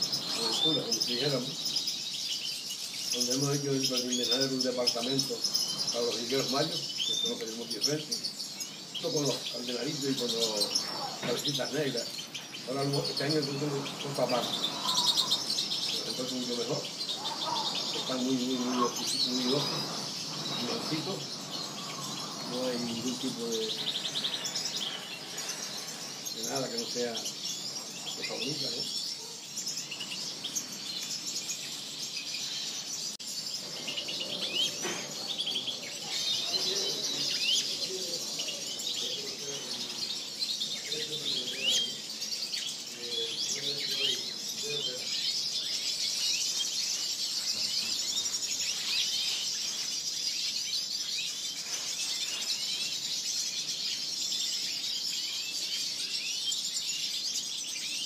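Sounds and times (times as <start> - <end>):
finches chirping and twittering: 0.0 - 58.0.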